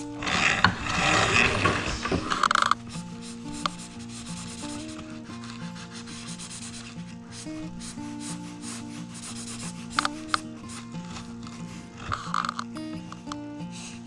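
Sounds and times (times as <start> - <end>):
quiet background music: 0.0 - 14.0
marker scratches: 1.8 - 12.4
marker rubbing on paper: 2.9 - 12.3.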